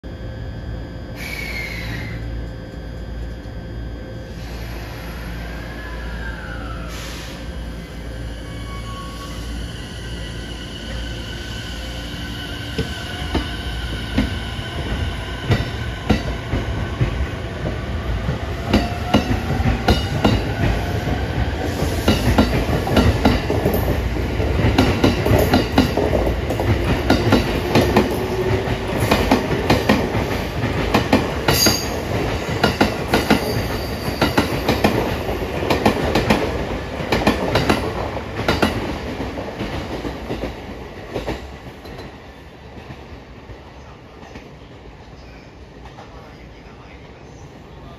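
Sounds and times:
electric train motor whine: 0.1s - 37.0s.

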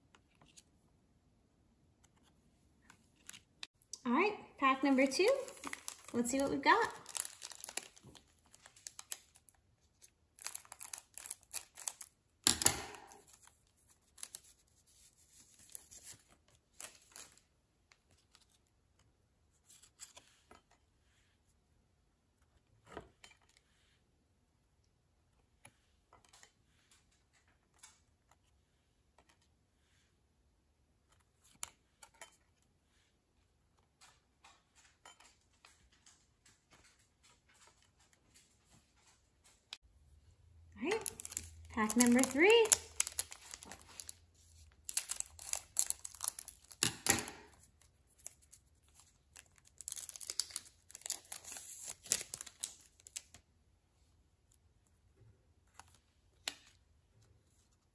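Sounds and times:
card pack wrapper tearing: 5.3s - 9.5s, 10.4s - 13.5s, 40.9s - 53.4s.

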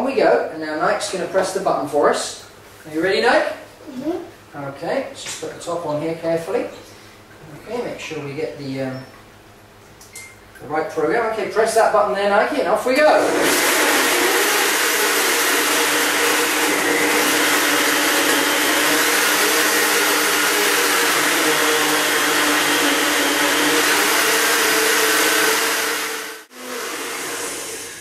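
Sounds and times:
blender motor whining: 13.0s - 28.0s.

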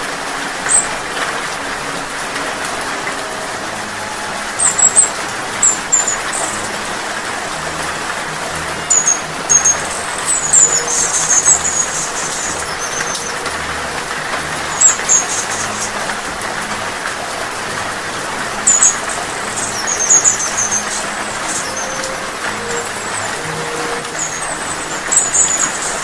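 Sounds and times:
falling rain hiss: 0.0s - 26.0s
hummingbird squeaky chirps: 8.8s - 13.5s.

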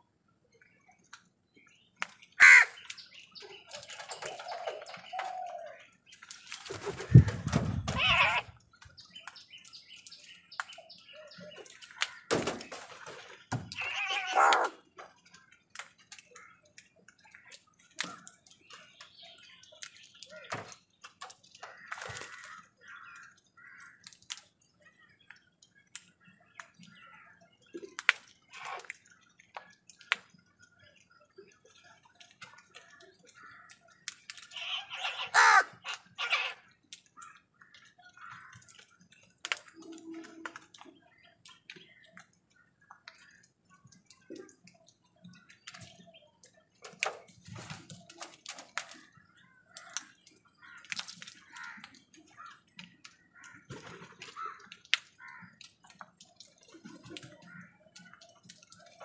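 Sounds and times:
beaks tapping on concrete: 1.0s - 59.0s
crows cawing: 2.4s - 2.8s, 7.9s - 8.5s, 13.8s - 14.8s, 21.6s - 24.0s, 34.6s - 37.4s, 38.1s - 38.7s, 50.6s - 52.6s, 53.4s - 55.6s.

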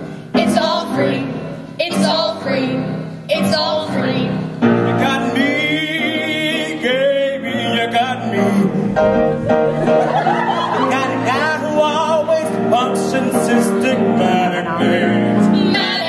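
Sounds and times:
piano accompaniment: 0.0s - 16.0s
young singers singing show tune: 10.5s - 16.0s.

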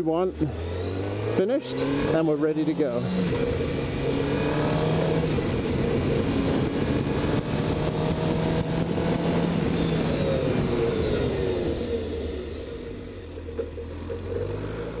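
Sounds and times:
motorcycle engine running: 0.0s - 15.0s
wind rushing over microphone: 2.9s - 12.1s.

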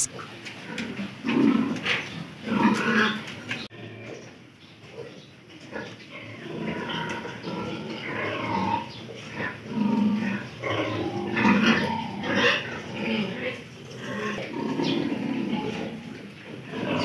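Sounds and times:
piglets grunting: 5.7s - 17.0s.

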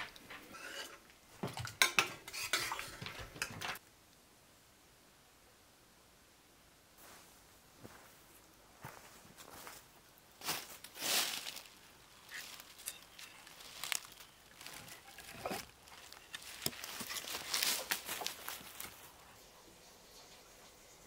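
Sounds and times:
footsteps crunching dry leaves: 8.9s - 19.1s.

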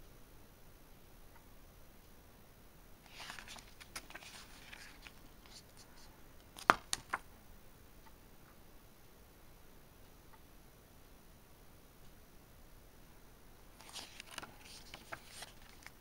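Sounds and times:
paper page turning: 3.1s - 7.2s, 13.8s - 16.0s.

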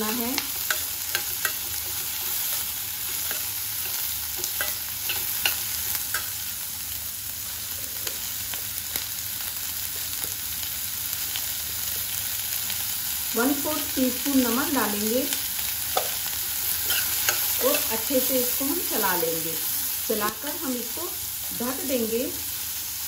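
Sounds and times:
spoon scraping against pan: 0.0s - 6.5s, 15.9s - 18.1s
vegetables sizzling in oil: 0.0s - 23.0s.

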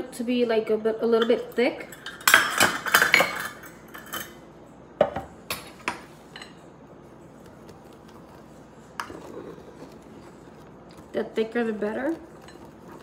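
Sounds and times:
fork stirring batter: 6.2s - 13.0s.

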